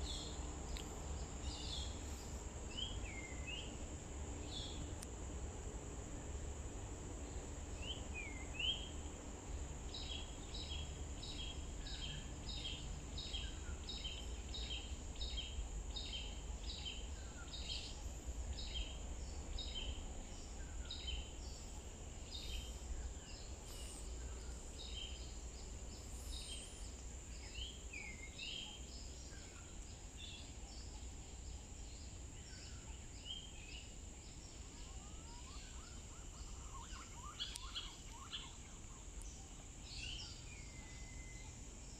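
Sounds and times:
insect drone: 0.0s - 41.9s
bird chirps: 18.6s - 41.6s.

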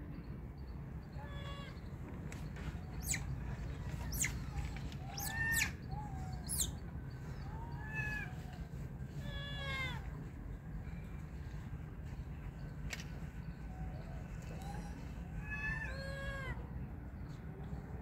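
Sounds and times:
meow-like animal calls: 1.2s - 1.8s, 5.0s - 6.8s, 7.4s - 10.1s, 14.5s - 16.7s.

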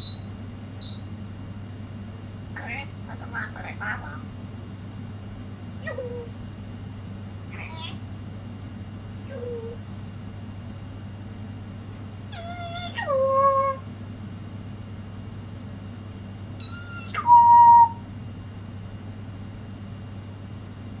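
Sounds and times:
parrot calling: 0.0s - 1.2s, 2.6s - 4.3s, 5.8s - 6.3s, 7.5s - 8.0s, 9.2s - 9.8s, 12.3s - 13.9s, 16.6s - 18.1s.

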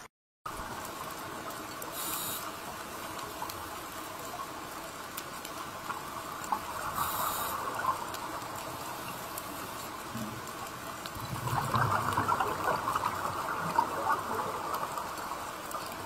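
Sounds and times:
underwater water noise: 0.0s - 16.0s
short high hisses: 2.0s - 2.5s, 7.0s - 7.6s.

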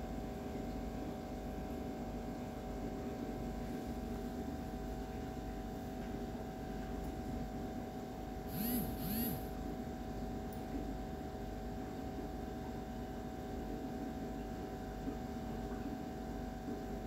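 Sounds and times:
short rising and falling chirps: 8.5s - 9.5s
low hum: 8.5s - 9.6s.

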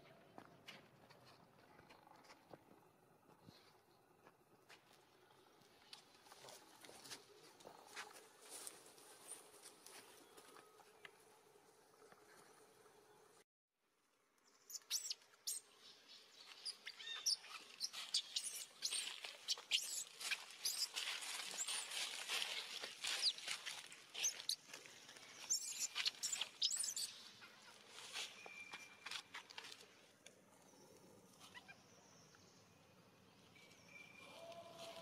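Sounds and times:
high-pitched animal chirps and squeaks: 14.7s - 15.6s, 16.6s - 22.0s, 24.2s - 24.6s, 25.5s - 27.2s.

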